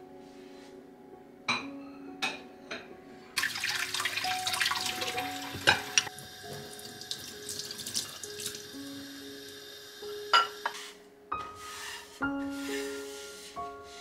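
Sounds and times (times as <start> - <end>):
dishes clinking: 1.5 - 2.9, 5.5 - 6.7, 10.3 - 10.8
tap water running into sink: 3.4 - 8.8.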